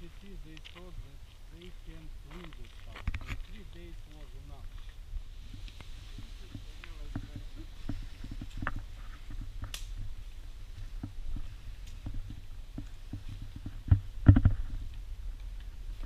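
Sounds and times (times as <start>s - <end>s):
footsteps over debris: 0.0s - 16.0s.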